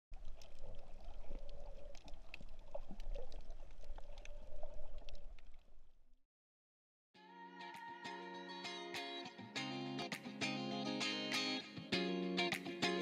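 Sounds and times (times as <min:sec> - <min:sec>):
underwater clicks and crackles: 0:00.1 - 0:06.0.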